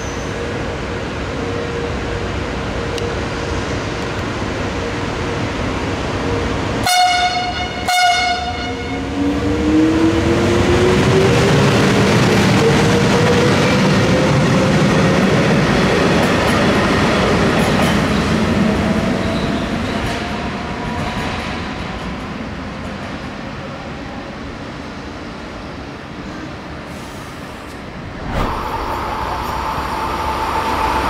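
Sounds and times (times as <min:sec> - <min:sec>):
train rumbling past: 0:00.0 - 0:31.0
locomotive horn blasts: 0:06.8 - 0:09.0
train whine rising in pitch: 0:27.9 - 0:31.0.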